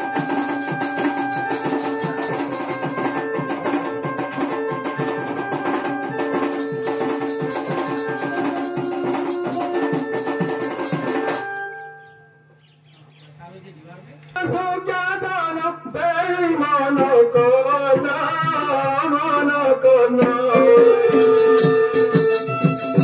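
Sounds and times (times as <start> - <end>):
fast hand drumming: 0.0 - 11.5, 20.2 - 23.0
electronic keyboard melody: 0.0 - 12.8.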